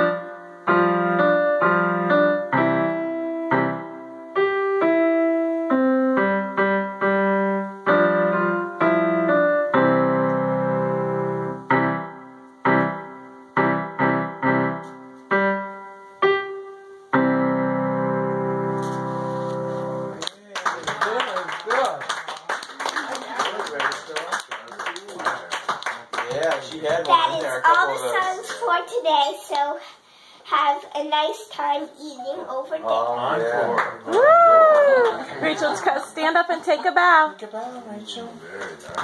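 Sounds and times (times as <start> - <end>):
piano playing notes and chords: 0.0 - 20.4.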